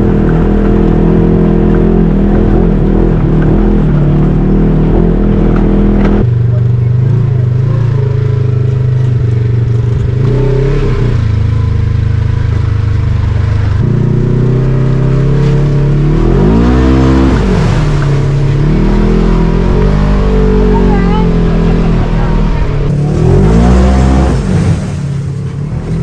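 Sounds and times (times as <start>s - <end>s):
vehicle engine running and revving: 0.0s - 26.0s.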